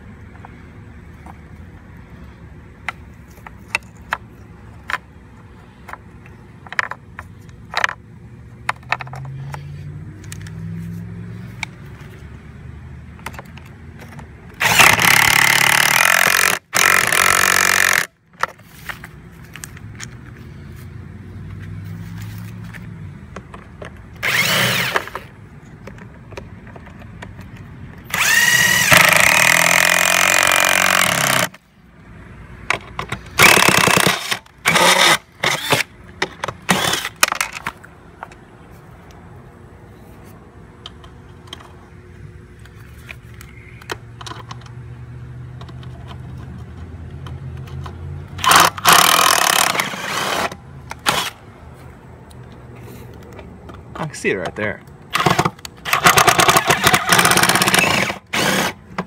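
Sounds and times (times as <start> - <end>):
small clicks of bolts handled: 8.6 - 10.6, 13.2 - 14.6, 18.4 - 20.5, 25.0 - 28.0, 40.8 - 41.8, 42.6 - 44.8, 45.5 - 49.7, 51.8 - 55.8
power drill driving bolts: 14.6 - 18.1, 24.2 - 25.3, 28.1 - 31.6, 33.4 - 37.7, 48.4 - 51.4, 55.1 - 58.8.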